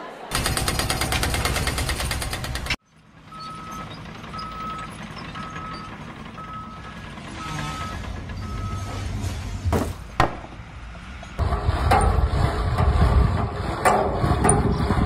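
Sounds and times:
reversing alarm beeping: 3.3 - 9.2.

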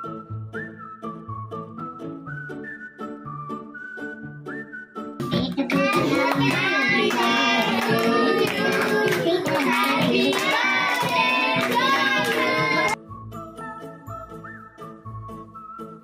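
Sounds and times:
hand clapping: 5.3 - 13.0
children singing together: 5.6 - 13.0.

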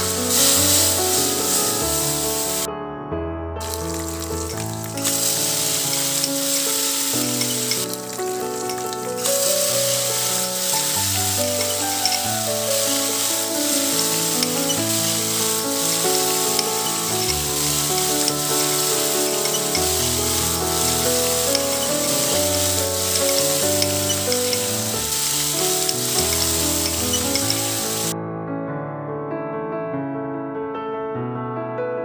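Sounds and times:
rice sizzling in a pan: 0.0 - 2.7, 3.6 - 28.2
slow background music: 0.0 - 2.7, 3.7 - 7.1, 7.7 - 27.6.

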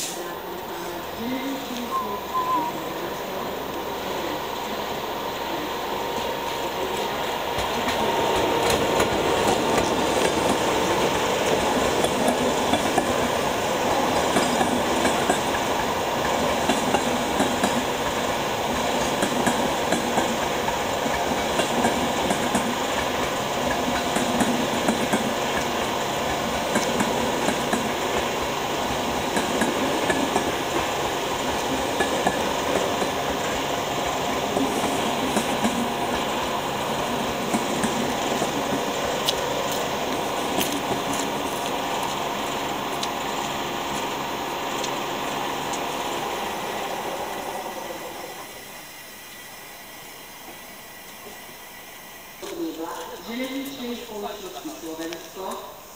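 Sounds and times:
train wheels clicking over rail joints: 6.2 - 45.0.

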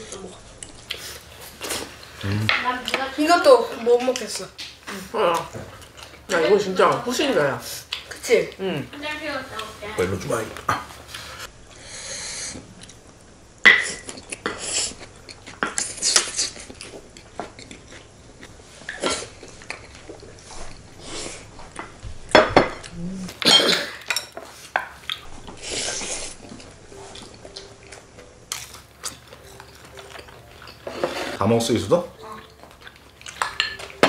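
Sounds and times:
cutlery clinking on dishes: 22.4 - 25.0, 33.3 - 34.0.

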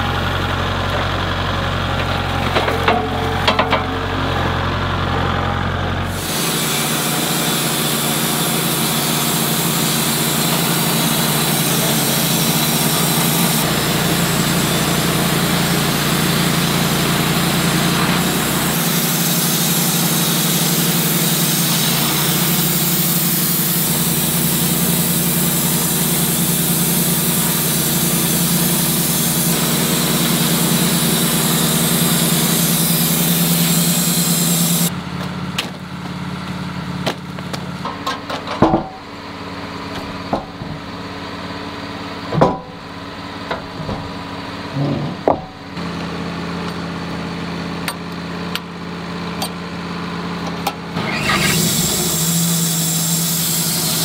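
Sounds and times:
band saw cutting log: 6.0 - 35.0, 50.9 - 54.0.

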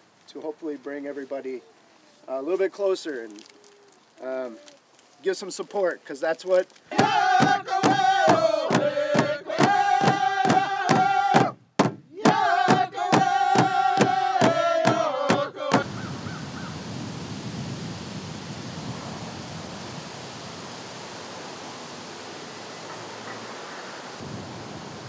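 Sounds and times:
steady outdoor hiss: 0.0 - 25.0
drum struck with a stick: 6.9 - 15.8.

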